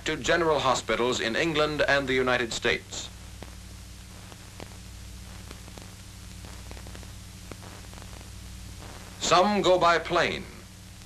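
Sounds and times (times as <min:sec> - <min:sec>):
film soundtrack hiss and hum: 0:00.0 - 0:11.0
faint clicks and pops: 0:03.1 - 0:09.3, 0:10.7 - 0:11.0.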